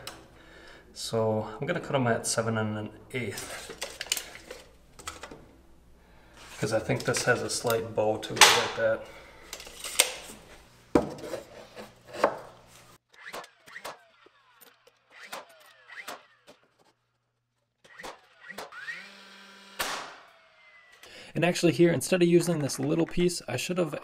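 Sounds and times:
nailer whirring: 0:13.1 - 0:17.0, 0:17.8 - 0:21.1
nail gun bang: 0:19.7 - 0:20.3.

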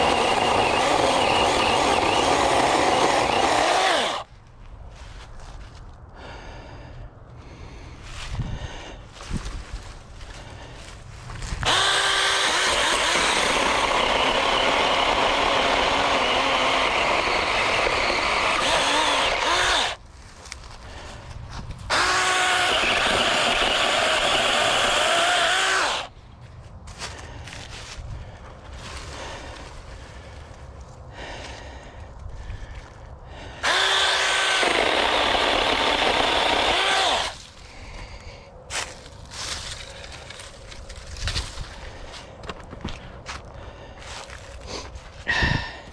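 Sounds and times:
small chainsaw cutting wood: 0:00.0 - 0:04.3, 0:11.6 - 0:20.0, 0:21.9 - 0:26.1, 0:33.6 - 0:37.4.

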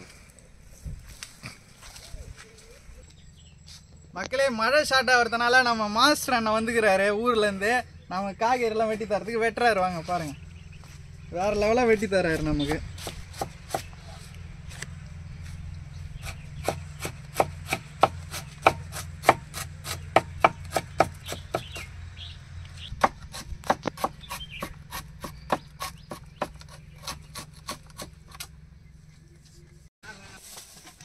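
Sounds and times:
knife chopping on wooden board: 0:12.3 - 0:13.9, 0:16.2 - 0:21.9, 0:23.0 - 0:28.5.

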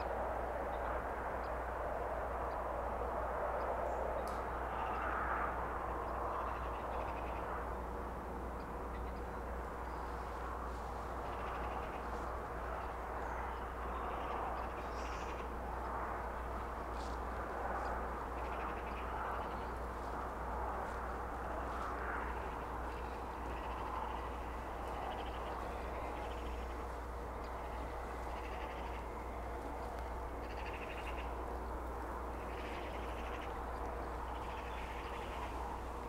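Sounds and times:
low steady rumble: 0:00.0 - 0:36.0
rasping bird calls: 0:21.4 - 0:31.7.

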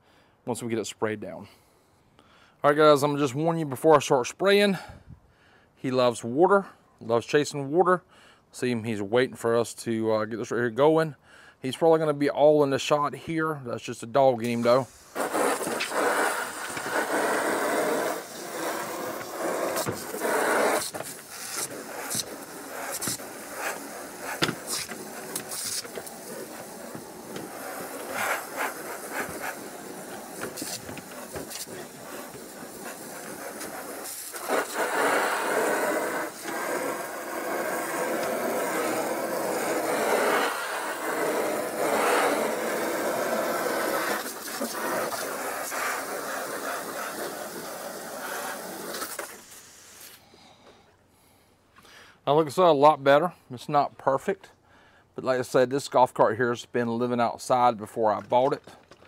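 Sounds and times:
hose spray hissing and splattering: 0:14.4 - 0:50.2.

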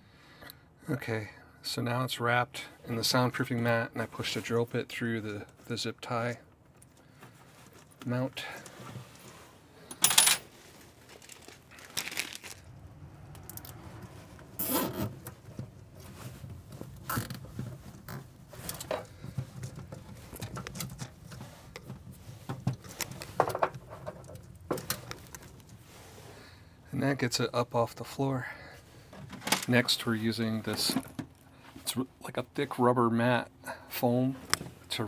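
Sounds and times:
hands rustling and scraping: 0:10.5 - 0:12.7, 0:13.6 - 0:26.5
zip tie zipping: 0:14.6 - 0:15.3.

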